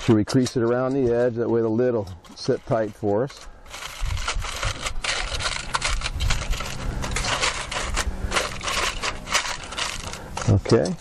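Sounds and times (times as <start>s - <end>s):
aluminium foil crinkling: 2.4s - 11.0s.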